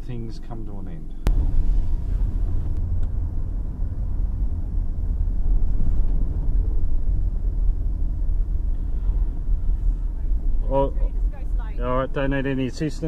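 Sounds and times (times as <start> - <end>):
car engine and tyres rumble: 0.0 - 13.0.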